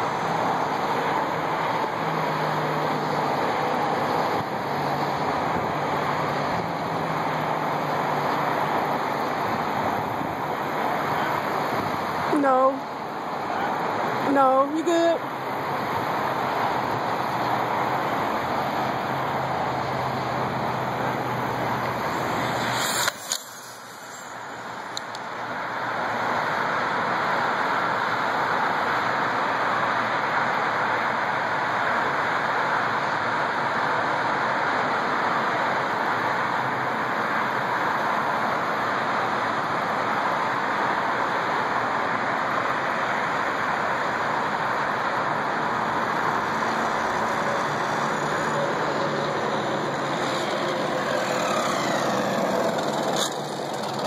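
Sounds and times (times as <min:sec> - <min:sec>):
steady rushing noise: 0:00.0 - 0:32.2, 0:32.8 - 0:54.0
electric motor whine: 0:46.7 - 0:54.0.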